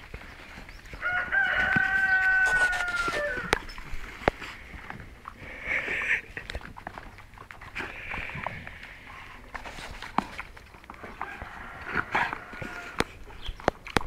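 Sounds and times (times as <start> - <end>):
rooster crowing: 1.0 - 3.6, 11.0 - 13.0.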